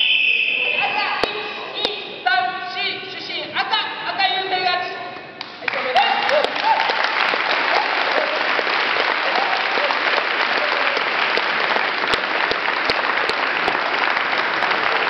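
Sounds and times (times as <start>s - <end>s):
audience applauding: 5.6s - 15.0s.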